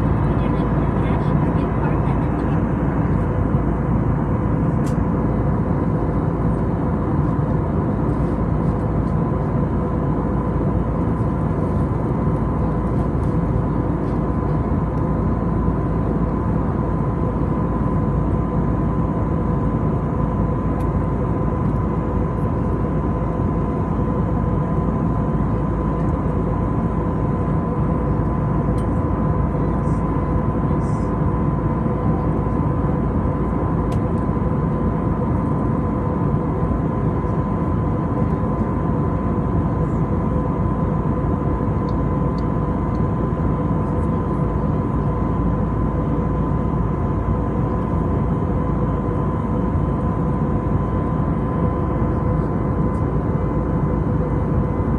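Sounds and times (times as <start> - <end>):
jet engine drone: 0.0 - 54.9
steady high hum: 0.0 - 54.9.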